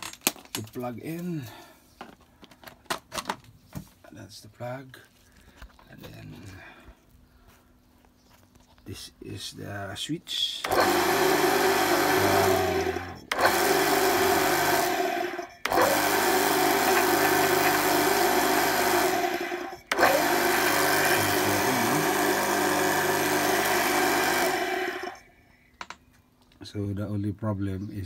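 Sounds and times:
pressure washer motor running: 0:10.6 - 0:25.2.

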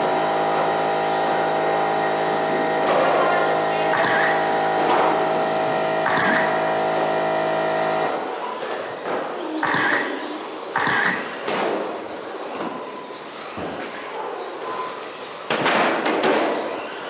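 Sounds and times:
steady multi-tone hum: 0:00.0 - 0:16.8
toy trucks passing and landing: 0:06.0 - 0:06.6.

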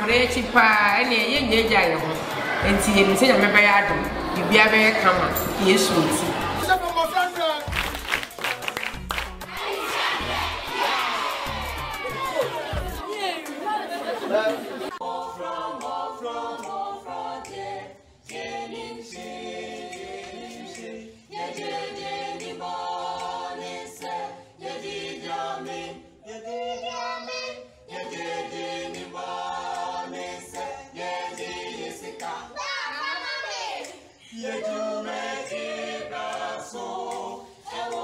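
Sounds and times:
children singing: 0:09.5 - 0:38.0.

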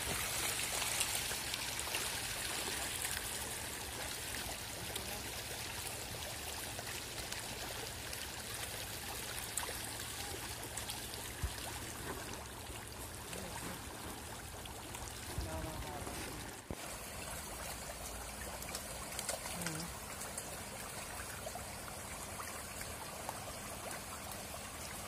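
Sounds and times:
small sharp splashes: 0:17.4 - 0:21.6.

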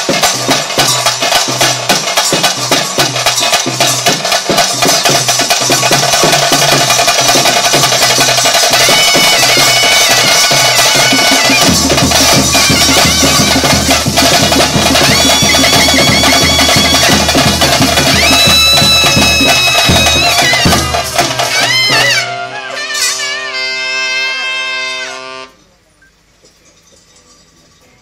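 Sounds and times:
fast dense drumming: 0:00.0 - 0:22.2.

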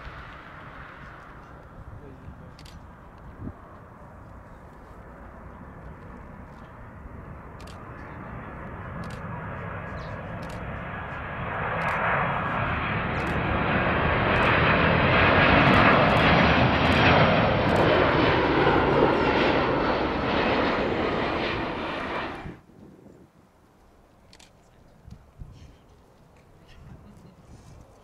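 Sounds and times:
jet airliner passing overhead: 0:00.0 - 0:28.0.

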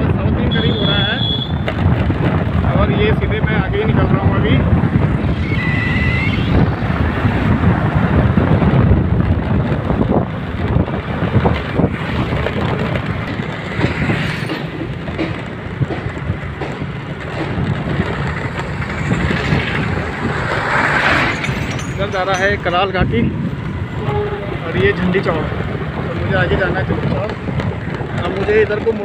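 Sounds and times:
motorcycle engine and road rumble: 0:00.0 - 0:29.0
wind buffeting microphone: 0:00.0 - 0:29.0
knocks and rattles: 0:06.6 - 0:23.8.

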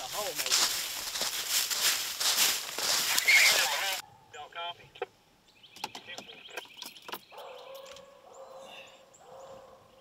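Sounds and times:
birds chirping: 0:00.0 - 0:10.0
distant hounds baying: 0:07.2 - 0:10.0.

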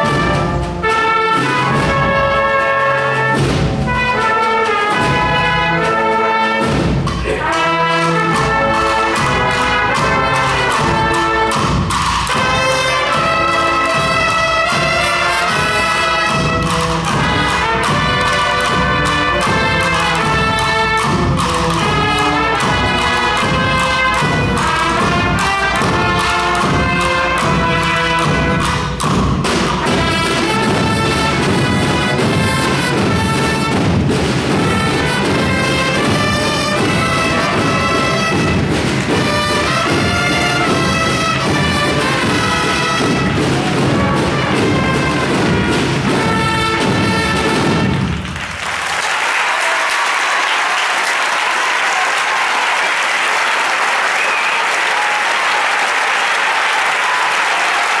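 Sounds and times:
marching band playing: 0:00.0 - 0:58.0
audience applause: 0:46.3 - 0:58.0.

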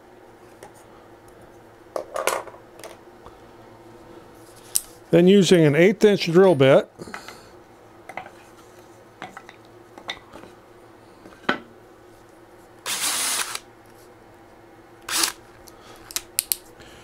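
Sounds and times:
harsh drill burst: 0:12.9 - 0:13.6, 0:15.1 - 0:15.4.

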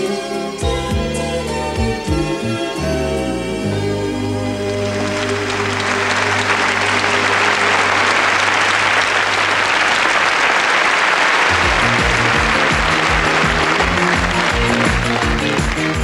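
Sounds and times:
low held music chord: 0:02.4 - 0:09.0, 0:11.5 - 0:15.4
audience applauding: 0:04.5 - 0:16.0
music with a beat: 0:11.5 - 0:16.0.

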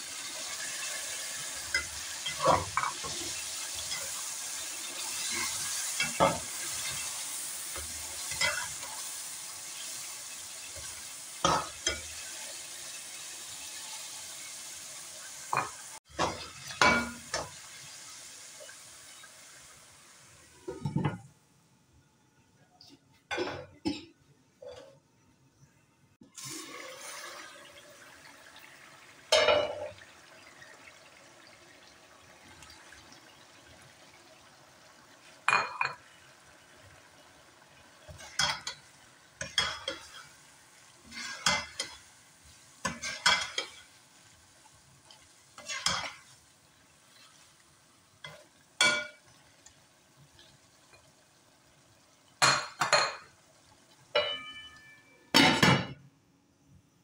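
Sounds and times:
faint sizzling in a pan: 0:00.0 - 0:56.0
spatula scraping a metal pan: 0:41.0 - 0:42.0, 0:45.6 - 0:46.3.

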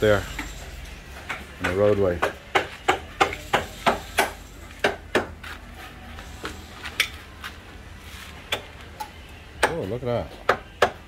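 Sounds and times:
hammer striking chisel: 0:01.2 - 0:05.4, 0:08.5 - 0:11.0.

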